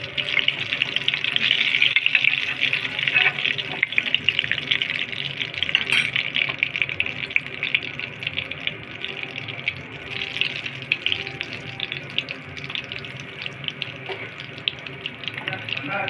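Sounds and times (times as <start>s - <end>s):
food deep-frying in oil: 0.0s - 16.0s.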